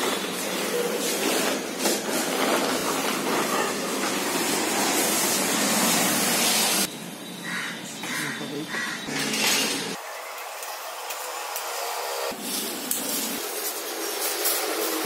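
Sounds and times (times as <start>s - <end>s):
plastic tarpaulin rustling: 0.0s - 6.0s, 12.3s - 15.0s.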